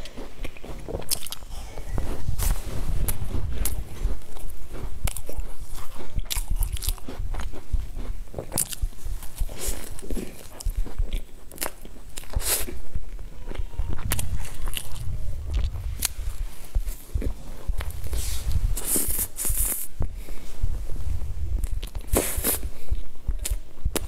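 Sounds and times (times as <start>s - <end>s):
chewing: 0.0s - 20.4s, 21.5s - 24.0s.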